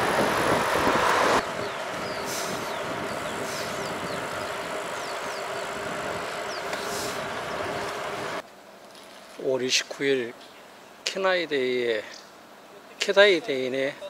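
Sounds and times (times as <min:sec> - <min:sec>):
vehicle road noise: 0:00.0 - 0:08.5.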